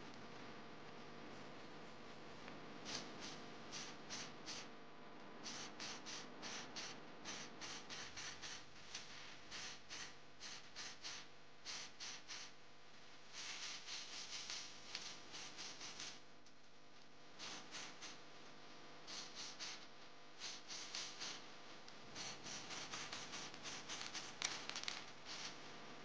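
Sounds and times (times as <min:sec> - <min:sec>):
spray paint can hissing: 0:02.9 - 0:04.7, 0:05.4 - 0:08.7, 0:09.5 - 0:12.6, 0:13.4 - 0:16.2, 0:17.4 - 0:18.2, 0:19.1 - 0:21.5, 0:22.2 - 0:25.6.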